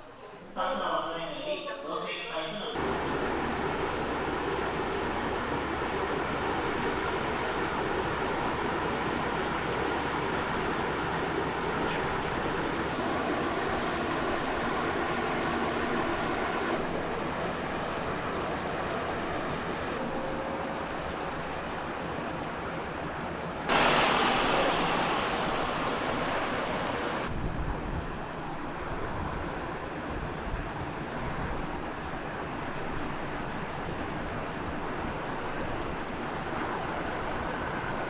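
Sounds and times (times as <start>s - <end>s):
wind noise: 26.4s - 38.0s.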